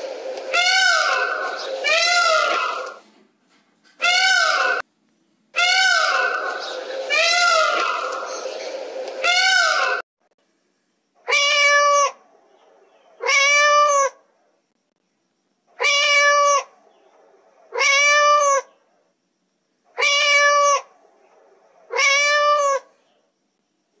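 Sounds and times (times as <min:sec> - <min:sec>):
cat meowing: 0:00.5 - 0:03.0, 0:04.0 - 0:04.8, 0:05.6 - 0:06.4, 0:11.3 - 0:12.2, 0:13.2 - 0:14.2, 0:15.8 - 0:16.7, 0:17.7 - 0:18.7, 0:20.0 - 0:20.9, 0:21.9 - 0:22.9.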